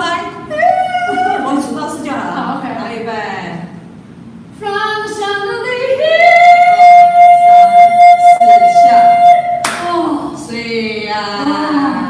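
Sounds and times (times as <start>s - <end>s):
woman singing high note: 4.6s - 10.2s.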